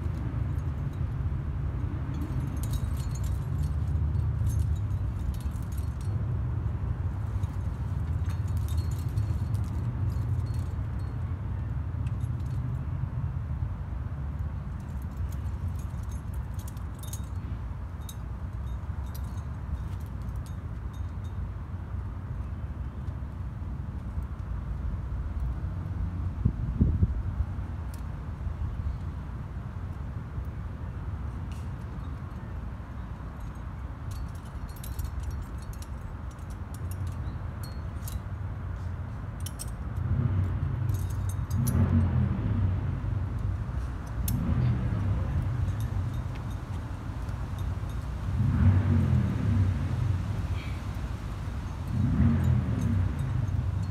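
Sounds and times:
metal climbing gear clinking: 0.0 - 12.9, 14.6 - 23.3, 31.3 - 53.9
steady low rumble: 33.4 - 53.9.

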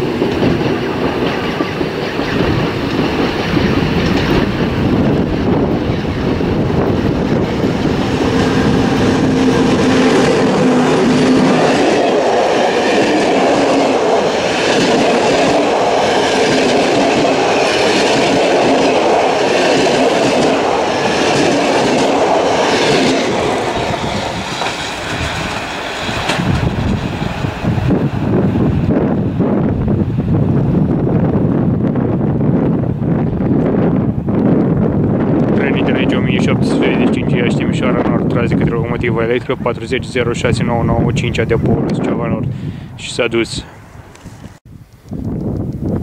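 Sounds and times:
train wheels clickety-clack: 0.0 - 27.5
electric locomotive hum: 0.0 - 46.0.

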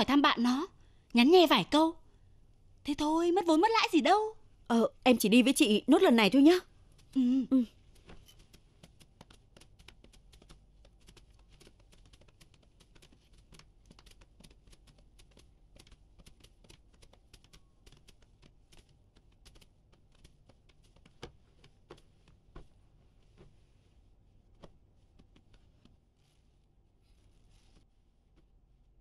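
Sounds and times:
faint ticking and rustling: 6.4 - 23.7.

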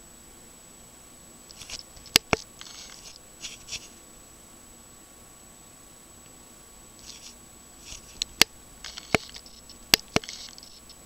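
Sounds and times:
light scratchy rustles: 1.5 - 4.0, 7.0 - 11.0
bird bill tapping: 7.9 - 11.0.

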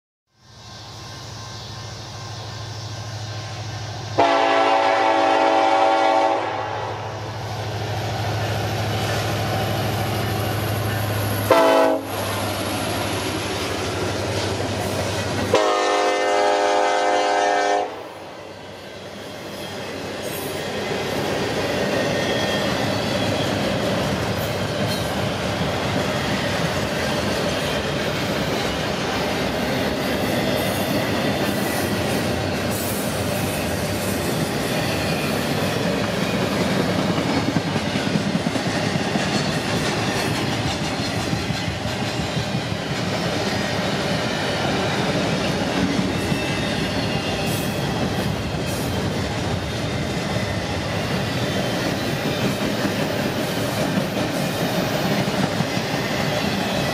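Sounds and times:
rail cars rumbling and clattering: 0.4 - 56.9
locomotive horn blasts: 4.2 - 7.0, 11.5 - 12.3, 15.5 - 18.2.

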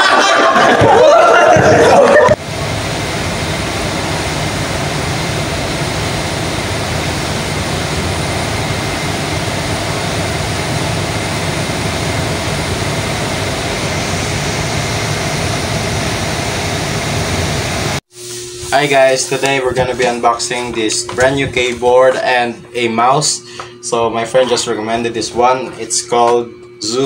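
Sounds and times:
boat engine humming: 1.9 - 18.0.

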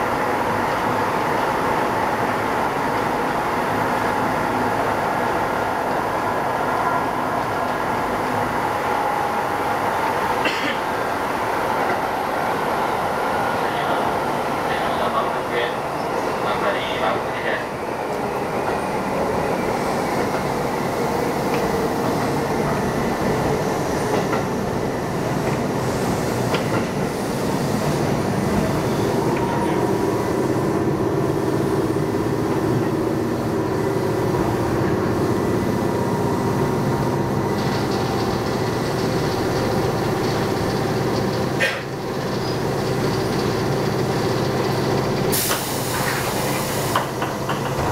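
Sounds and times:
train motor and gear hum: 0.0 - 47.9
wheel and rail noise: 0.1 - 47.9
train brake hiss: 41.5 - 42.0, 45.3 - 47.3.

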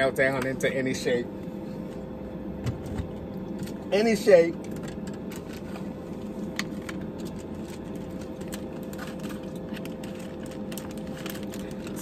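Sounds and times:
steady low hum: 0.0 - 12.0
plastic bag crinkling: 7.1 - 12.0.

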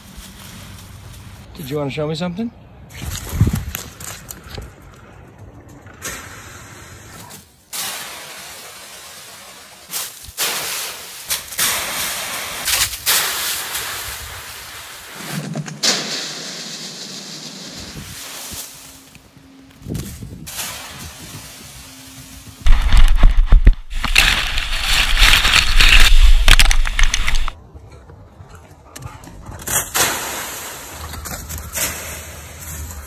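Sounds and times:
dry leaves rustling and crashing: 0.0 - 1.5, 7.8 - 27.6.

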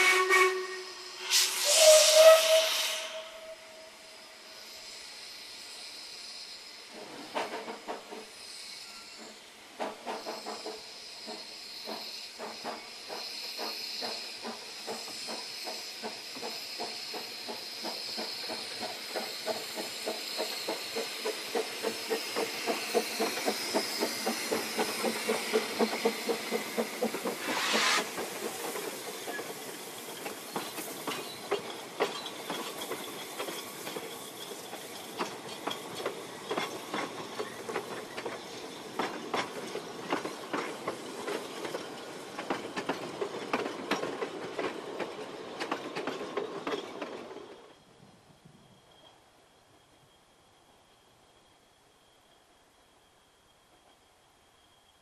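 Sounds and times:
loud burst of steam: 0.0 - 31.4
steam locomotive exhaust chuffs: 0.0 - 46.8
steam hissing from cylinders: 0.0 - 47.0
train wheels clattering on rails: 6.9 - 47.9.

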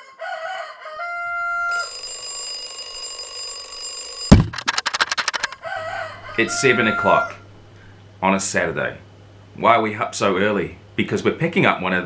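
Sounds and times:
bell alarm clock ringing: 1.7 - 4.6
steady alarm tone: 1.7 - 4.9.

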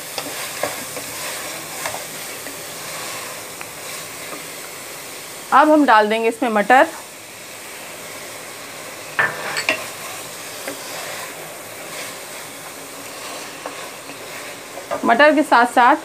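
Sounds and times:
food sizzling in oil: 0.0 - 16.0
spoon clacking against pan: 9.2 - 10.0.

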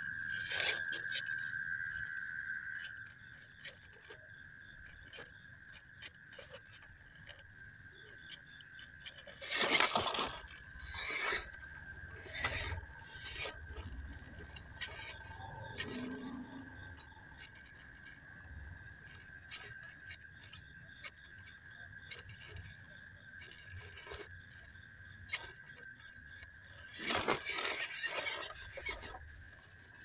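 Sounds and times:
electric motor and gears whirring: 0.0 - 30.0
high insect trill: 0.0 - 30.0
small ticks: 0.0 - 30.0
tyres scraping over logs: 0.3 - 1.5, 2.8 - 30.0.

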